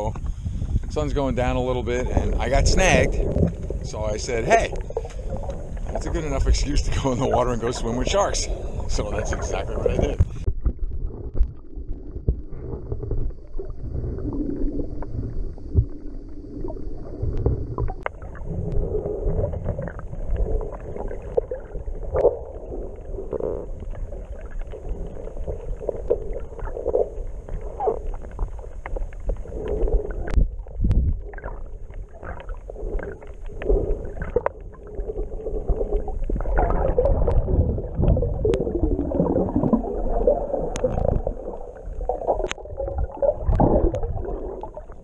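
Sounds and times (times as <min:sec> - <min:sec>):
low rumble: 0:00.0 - 0:45.0
water burbling underwater: 0:00.0 - 0:45.0.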